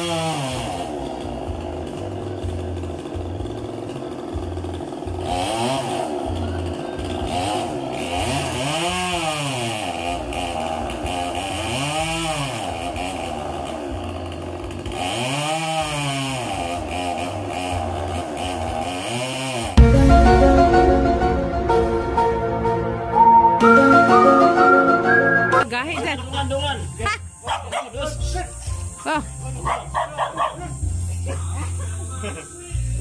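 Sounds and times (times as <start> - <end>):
chainsaw engine revving: 0.0 - 19.8.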